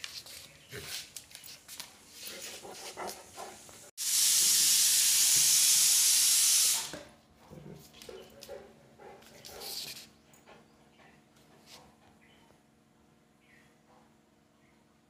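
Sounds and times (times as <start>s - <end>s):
loud steady hiss: 4.0s - 6.9s.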